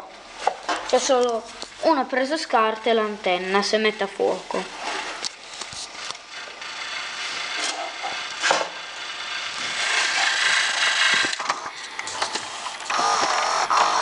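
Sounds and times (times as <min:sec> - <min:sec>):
tape rewinding whir: 0:05.9 - 0:14.0.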